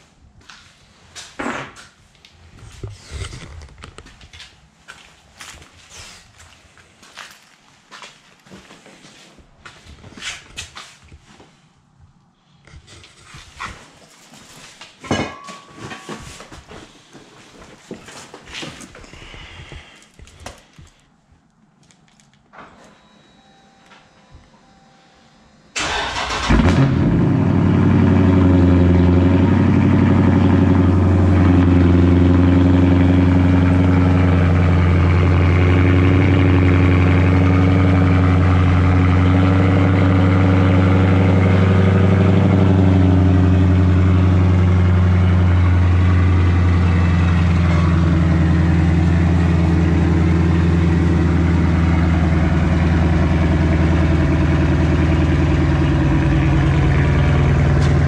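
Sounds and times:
loud car engine idling: 0:25.8 - 0:58.0.

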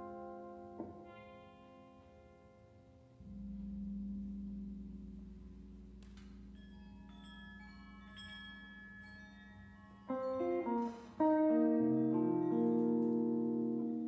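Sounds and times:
high ringing single notes: 0:03.2 - 0:13.1
low held tone: 0:03.2 - 0:14.0.

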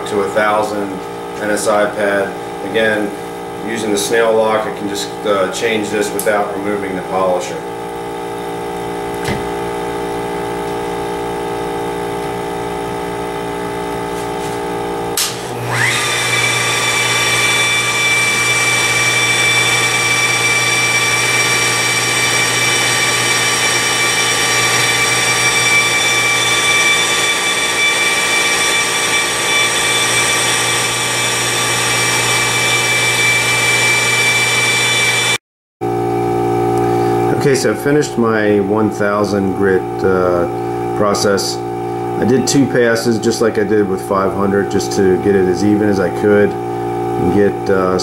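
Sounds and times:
polisher motor whine: 0:08.7 - 0:37.4.

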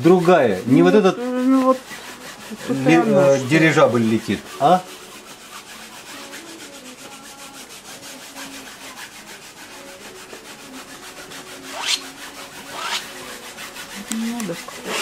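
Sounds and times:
paintbrush scrubbing on canvas: 0:00.0 - 0:15.0.

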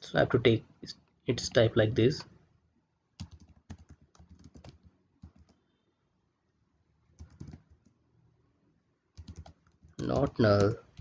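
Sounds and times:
typing on keyboard: 0:03.2 - 0:05.6, 0:07.2 - 0:08.0, 0:09.2 - 0:11.0.

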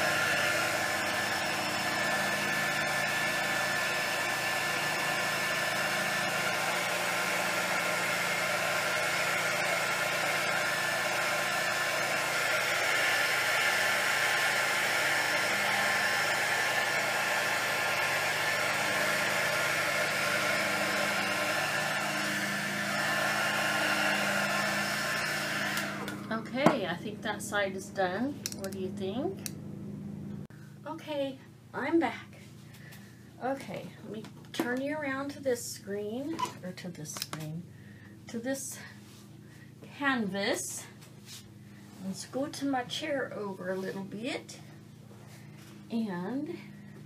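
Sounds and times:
heat gun fan blowing: 0:00.0 - 0:29.6.

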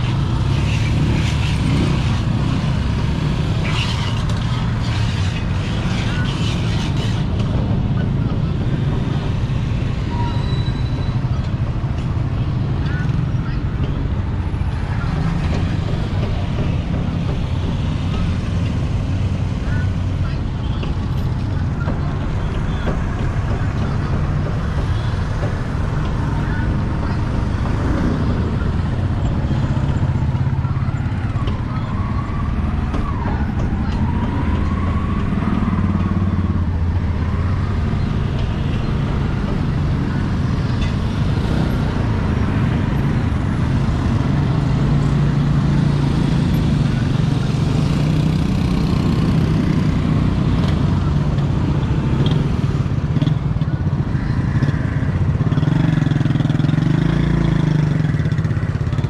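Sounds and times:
motorcycle engines droning: 0:00.0 - 0:59.0
faint voices: 0:11.0 - 0:59.0.

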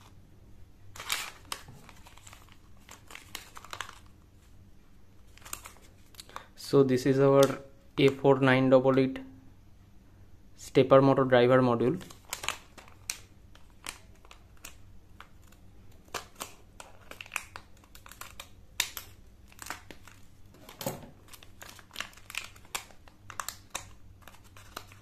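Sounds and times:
plastic bag crinkling: 0:00.9 - 0:04.2, 0:12.0 - 0:15.5, 0:16.1 - 0:25.0.

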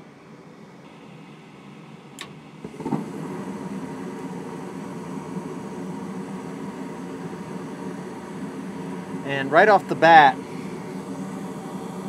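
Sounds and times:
furnace inducer motor humming: 0:00.0 - 0:12.0
burners lighting with soft thump: 0:02.2 - 0:07.4
steady rush of flame: 0:02.6 - 0:12.0.

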